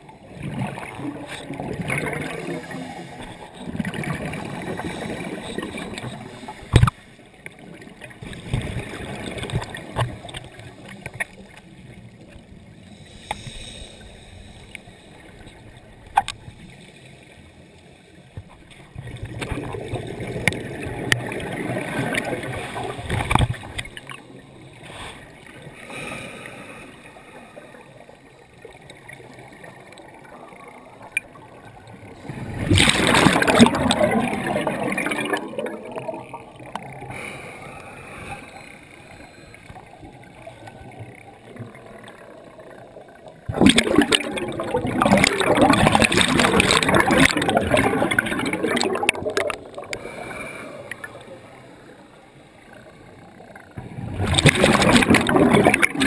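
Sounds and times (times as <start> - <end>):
muffled underwater regulator bubbling: 0.0 - 7.0, 28.6 - 51.4, 52.7 - 56.0
faint clicks and hiss: 0.0 - 33.6, 35.3 - 43.5, 46.1 - 56.0.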